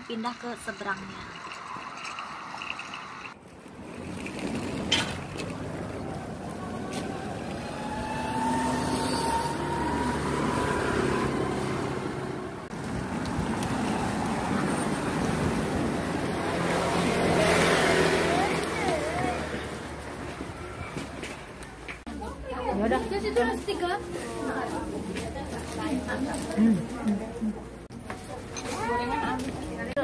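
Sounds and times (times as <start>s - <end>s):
cars running past: 2.6s - 22.1s.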